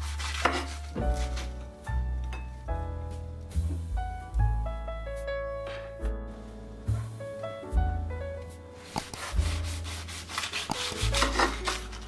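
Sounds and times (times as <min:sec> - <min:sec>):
deep steady bass: 0:02.7 - 0:08.4.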